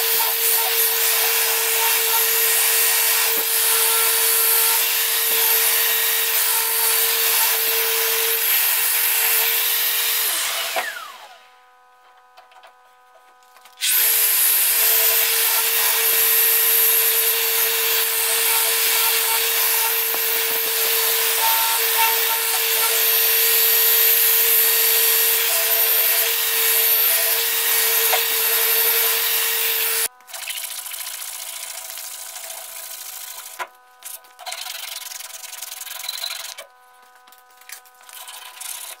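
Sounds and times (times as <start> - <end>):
sander sanding wood: 0.0 - 11.4, 13.8 - 30.1.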